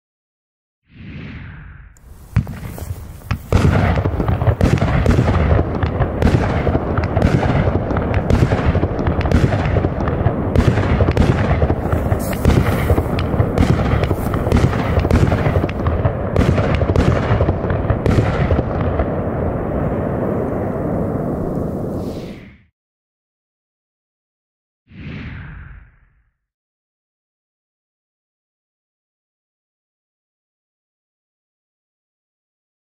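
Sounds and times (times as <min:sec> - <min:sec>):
firework bangs: 0:01.1 - 0:22.4.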